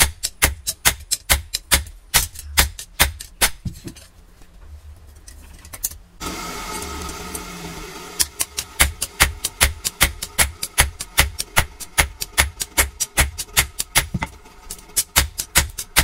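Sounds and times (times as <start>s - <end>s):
hammer blows on hot steel: 8.2s - 16.0s.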